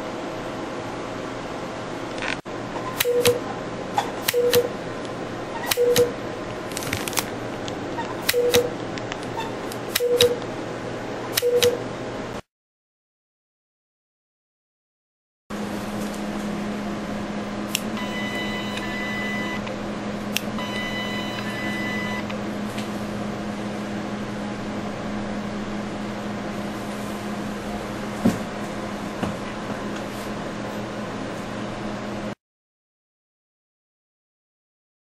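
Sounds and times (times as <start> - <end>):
sharp machine click: 3.0 - 3.4, 4.2 - 4.7, 5.6 - 6.2, 8.0 - 8.7, 9.4 - 10.4, 11.3 - 11.8
machine humming: 15.5 - 32.0
multi-tone beep: 18.0 - 19.7, 20.6 - 22.3.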